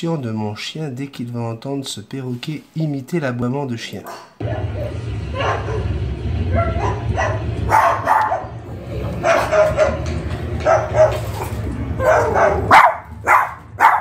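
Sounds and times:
steady low hum: 0:04.4 - 0:14.0.

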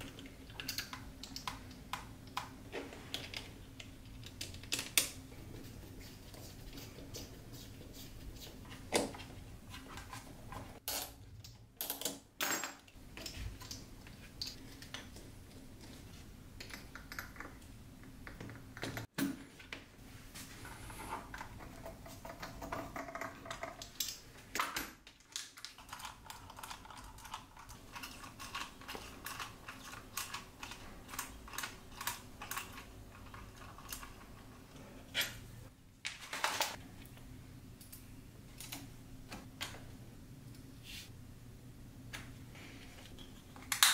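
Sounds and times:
plastic parts clicking and clattering: 0:21.2 - 0:34.6, 0:36.1 - 0:36.8.

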